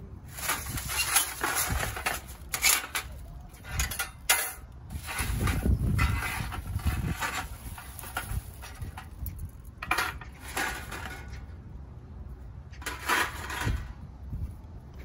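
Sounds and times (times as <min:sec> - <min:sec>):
wind rumble on microphone: 0:00.0 - 0:15.0
metal panels clinking: 0:00.3 - 0:11.5.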